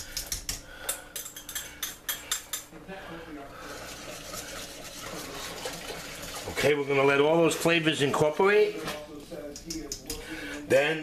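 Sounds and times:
whisk clinking against pot: 0.1s - 2.7s, 3.7s - 6.7s
whisk swishing in soup: 1.3s - 10.2s.

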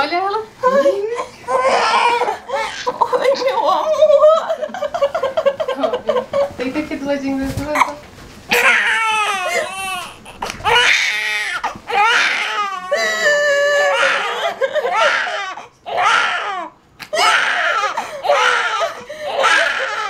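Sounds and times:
newborn baby crying: 0.9s - 3.1s, 8.5s - 20.0s
woman sobbing and crying out: 12.0s - 15.6s.

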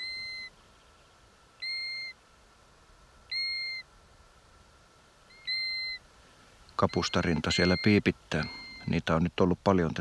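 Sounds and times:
bird whistled call: 0.0s - 0.6s, 1.6s - 2.2s, 3.3s - 3.9s, 5.3s - 6.0s, 6.8s - 9.0s.

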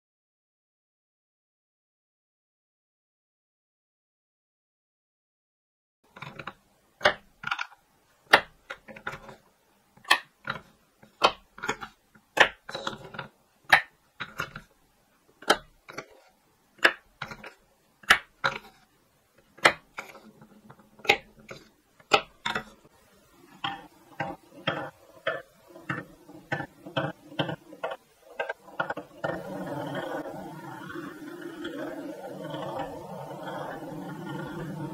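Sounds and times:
wooden balls knocking on wood: 8.3s - 9.4s, 10.0s - 14.7s, 15.4s - 18.8s, 19.4s - 22.9s, 23.5s - 34.9s
ball rolling along wooden track: 8.3s - 14.7s, 15.4s - 34.9s.

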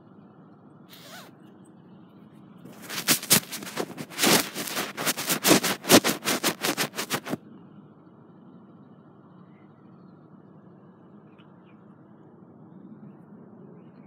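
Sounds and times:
phone microphone handling noise: 2.7s - 7.4s.

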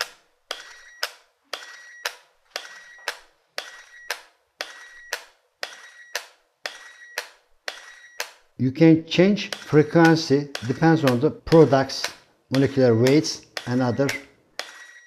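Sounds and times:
injector gun clicking: 0.0s - 8.5s, 9.2s - 14.8s.

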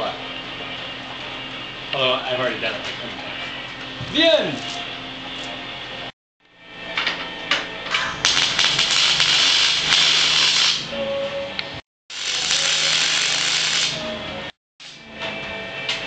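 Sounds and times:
welder arc crackling: 8.2s - 10.9s, 12.1s - 14.0s.

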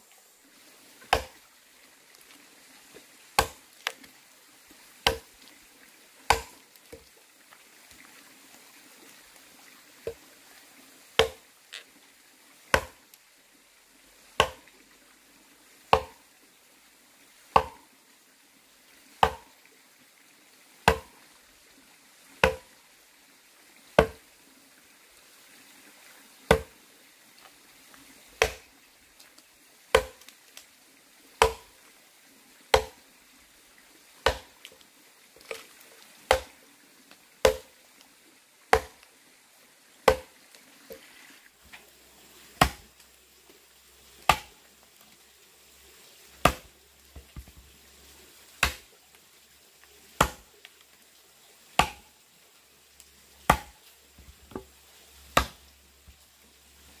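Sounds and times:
axe chopping wooden log: 1.0s - 1.4s, 3.4s - 4.0s, 5.0s - 5.3s, 6.3s - 6.6s, 11.2s - 11.4s, 12.7s - 13.0s, 14.4s - 14.6s, 15.9s - 16.2s, 17.6s - 17.8s, 19.2s - 19.5s, 20.8s - 21.2s, 22.4s - 22.7s, 24.0s - 24.2s, 26.5s - 26.7s, 28.4s - 28.7s, 29.9s - 30.3s, 31.4s - 31.8s, 32.7s - 33.0s, 34.2s - 34.6s, 36.3s - 36.6s, 37.4s - 37.7s, 38.7s - 39.0s, 40.1s - 40.3s, 42.6s - 42.9s, 44.3s - 44.6s, 46.4s - 47.5s, 48.6s - 48.9s, 50.2s - 50.5s, 51.8s - 52.1s, 53.5s - 53.8s, 55.3s - 55.6s.

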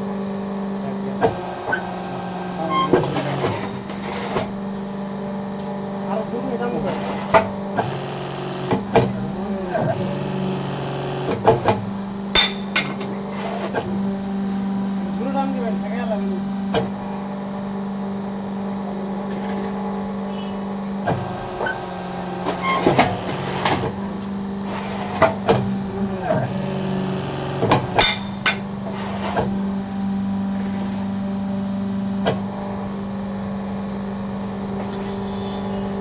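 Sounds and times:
motor and hydraulic pump humming: 0.0s - 36.0s.

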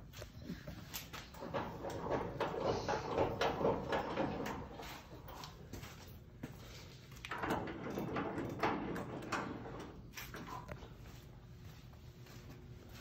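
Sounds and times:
metal clicks and rattles: 1.0s - 5.6s.

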